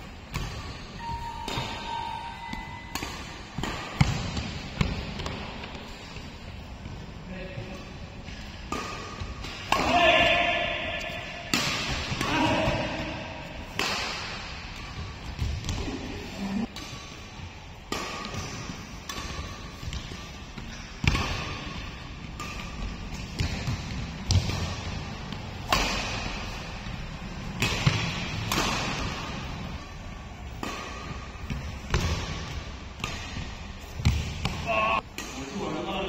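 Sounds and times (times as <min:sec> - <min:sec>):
racket striking shuttlecock: 0:00.3 - 0:05.4, 0:08.7 - 0:10.0, 0:10.7 - 0:15.7, 0:16.7 - 0:26.6, 0:27.5 - 0:29.6, 0:30.5 - 0:35.4.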